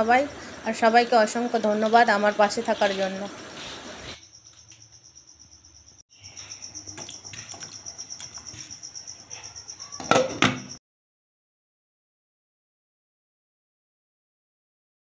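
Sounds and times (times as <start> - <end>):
glass lid clattering on pot: 10.0 - 10.7.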